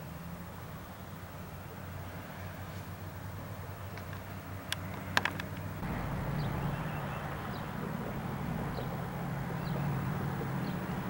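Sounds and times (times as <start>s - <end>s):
distant engine rumble: 0.0s - 11.0s
sharp clicks: 4.0s - 5.7s
bird chirping: 5.8s - 11.0s.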